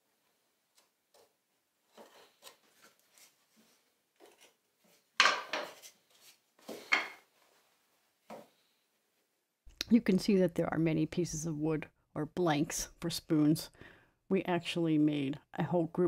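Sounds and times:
knife and pencil scratching wood: 1.9s - 5.0s.

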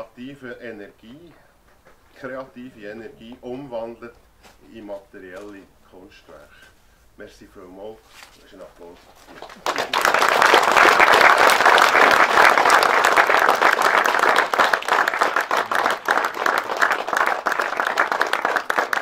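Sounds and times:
audience applauding: 9.2s - 19.0s.

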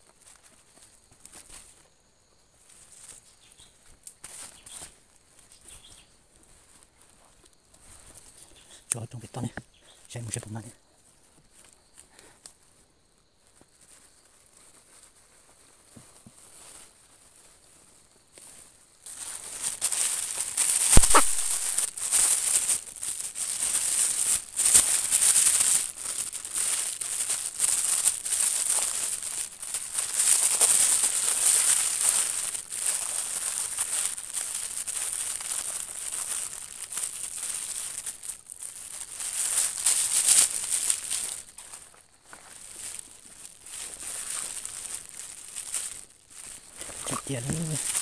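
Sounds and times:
close rustling and crinkling: 0.0s - 48.0s
sharp knock: 21.0s - 21.6s.

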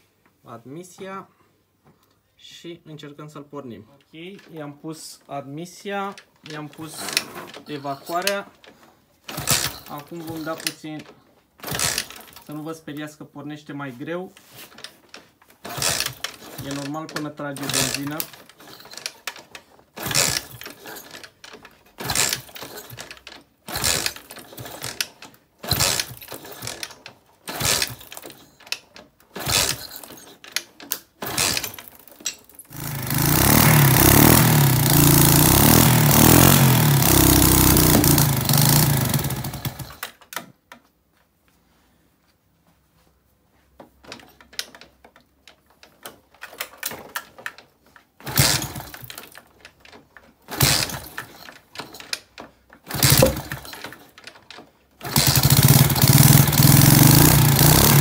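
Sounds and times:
moped engine being kick-started: 6.5s - 11.0s, 11.6s - 12.5s, 14.4s - 40.3s, 48.2s - 58.0s
moped engine running: 32.7s - 40.0s, 52.9s - 53.7s, 55.0s - 58.0s.

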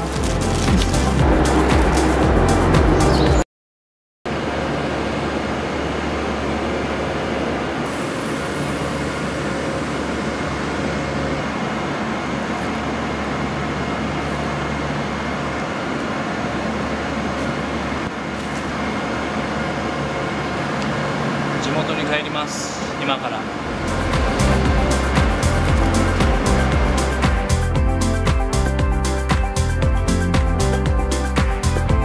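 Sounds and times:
electric train humming: 0.0s - 3.3s, 4.3s - 32.0s.

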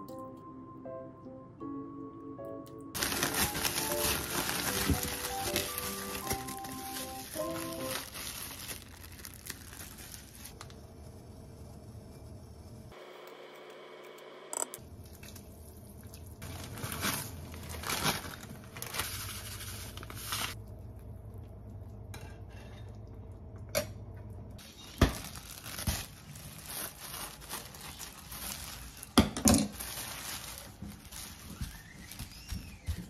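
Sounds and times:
plastic wrap crinkling: 3.0s - 10.8s, 16.4s - 20.6s, 24.6s - 33.0s.

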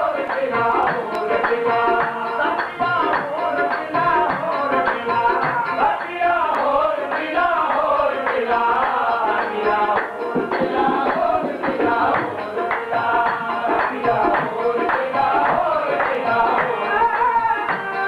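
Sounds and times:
harmonium chords: 0.0s - 18.0s
man singing: 0.0s - 18.0s
rhythmic percussion: 0.0s - 18.0s.

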